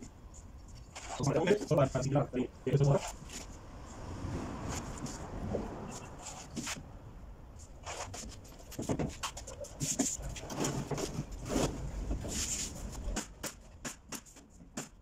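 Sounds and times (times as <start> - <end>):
wood knocking on plywood: 8.7 - 9.4.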